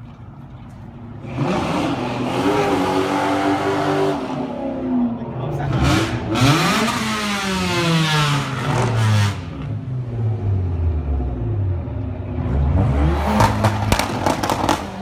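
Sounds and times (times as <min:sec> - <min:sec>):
car engine revving and idling: 0:01.2 - 0:15.0
exhaust pops: 0:13.3 - 0:15.0.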